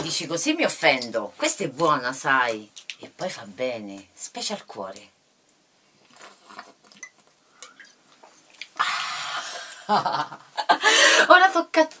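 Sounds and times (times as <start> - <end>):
woman exhaling breathily: 10.8 - 11.3.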